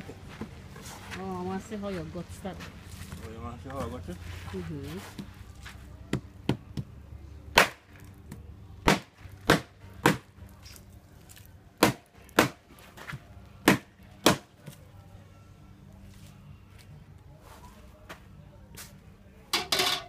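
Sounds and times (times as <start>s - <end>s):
machete chopping fish on wood: 8.8s - 10.3s, 11.8s - 12.6s, 13.6s - 14.5s.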